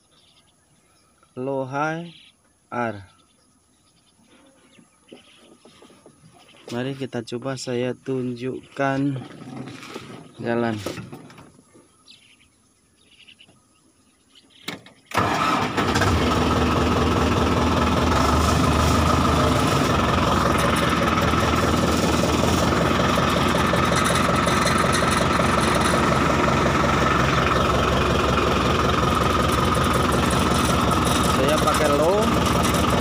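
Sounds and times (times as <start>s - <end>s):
tractor engine running under load: 15.1s - 33.0s.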